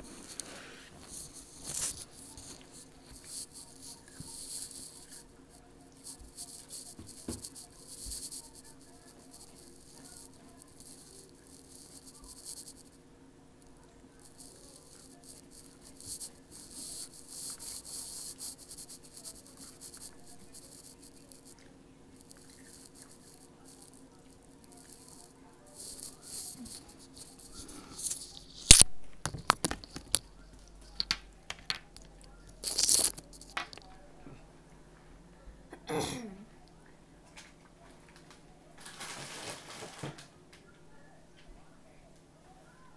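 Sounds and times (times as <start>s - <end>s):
faint steady hum: 0.0s - 42.9s
crunchy snacks being eaten: 31.9s - 33.9s.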